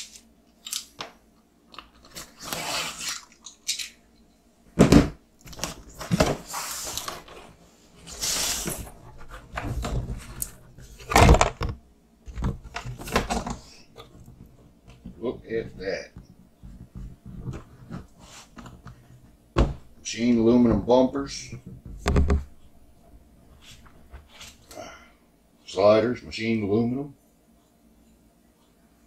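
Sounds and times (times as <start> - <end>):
cardboard rustling and scraping: 2.0 - 3.3, 5.5 - 22.7, 23.5 - 24.7
heavy thumps of box: 4.7 - 6.5, 19.6 - 20.0.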